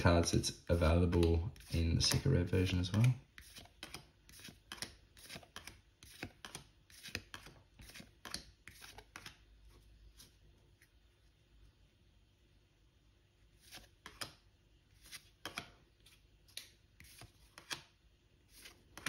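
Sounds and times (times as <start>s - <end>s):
cards flicked with papery snap: 1.1s - 9.4s, 13.7s - 14.4s, 15.1s - 15.8s, 16.4s - 17.9s.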